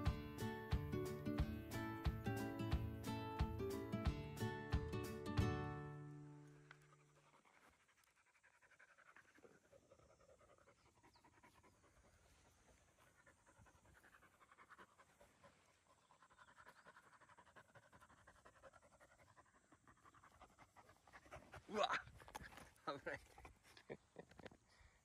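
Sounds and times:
puppy panting rapidly: 0:06.6 - 0:23.8.

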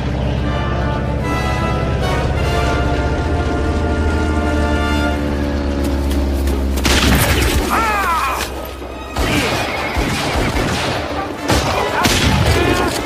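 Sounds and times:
sharp gunshots: 0:09.2 - 0:13.0.

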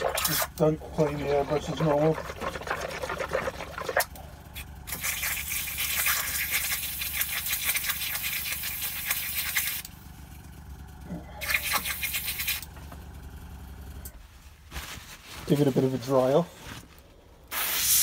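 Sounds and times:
air hissing through airbrush: 0:17.5 - 0:18.0.

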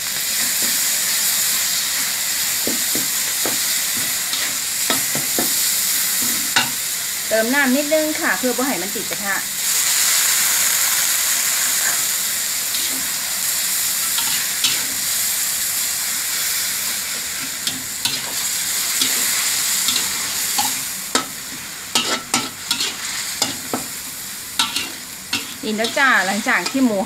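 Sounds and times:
meat sizzling in a wok: 0:00.0 - 0:27.0
metal spatula scraping a wok: 0:01.8 - 0:06.9, 0:12.7 - 0:13.4, 0:14.0 - 0:15.1, 0:16.8 - 0:27.0.

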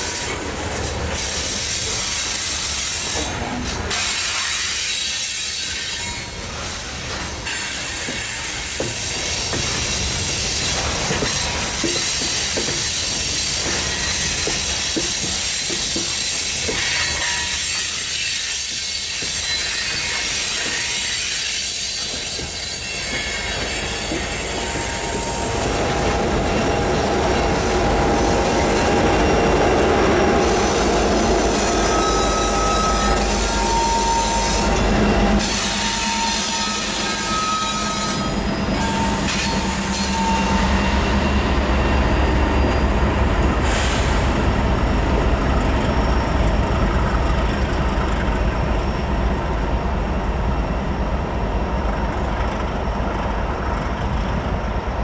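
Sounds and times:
train wheels rushing on rail: 0:00.0 - 0:55.0
wheel squeal: 0:16.4 - 0:25.5, 0:31.5 - 0:34.8, 0:35.4 - 0:43.0
diesel locomotive rumble: 0:22.0 - 0:55.0.

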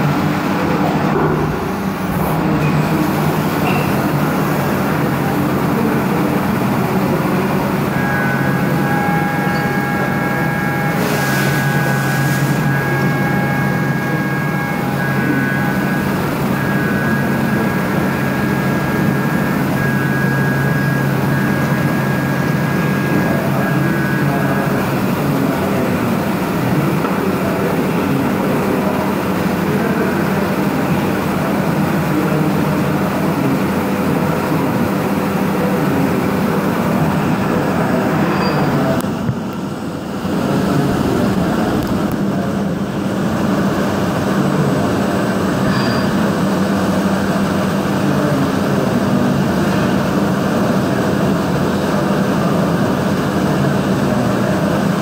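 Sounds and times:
high cutter whine: 0:00.0 - 0:55.0
milling machine cutting metal: 0:00.9 - 0:39.2.

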